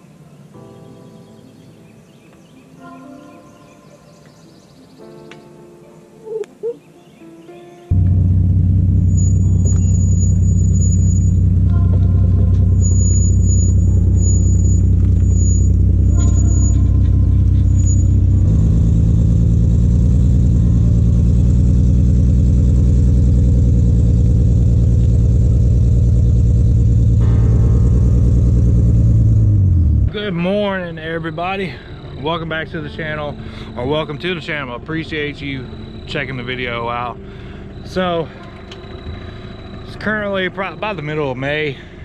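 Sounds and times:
car engine running: 7.9 - 42.0.

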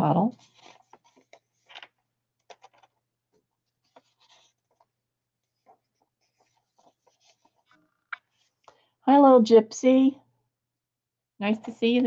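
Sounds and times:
paper pages rustling: 0.3 - 8.6.

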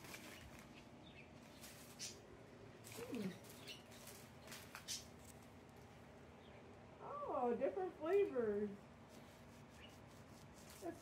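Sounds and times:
candy wrappers crinkling: 0.0 - 0.8.

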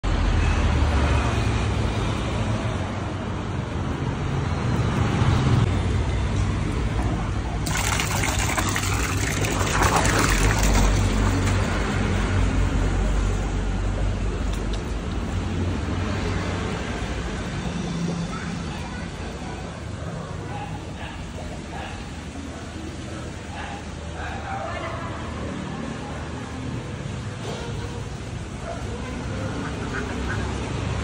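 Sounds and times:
street traffic hum: 0.0 - 31.0
fish splashing in water tank: 7.5 - 19.7.

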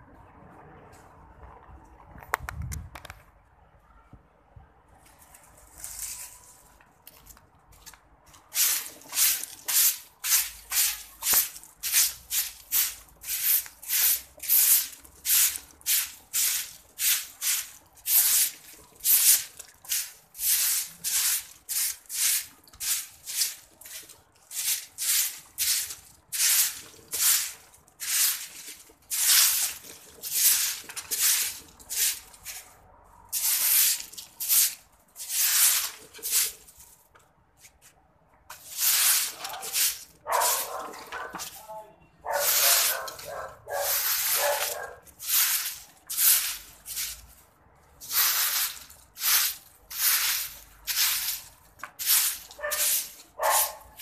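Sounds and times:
broom sweeping concrete floor: 5.1 - 37.0, 37.6 - 54.0.

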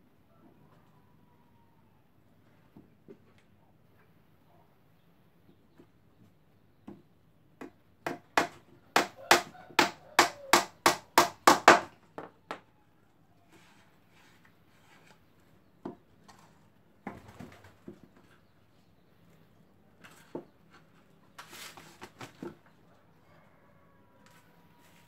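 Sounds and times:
hammer striking plywood box: 8.1 - 12.6.

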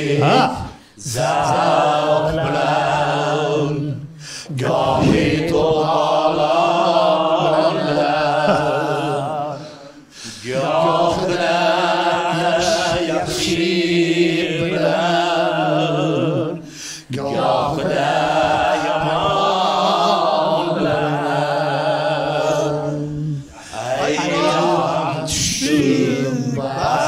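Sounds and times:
man singing with vibrato: 0.0 - 1.4, 23.6 - 27.0.

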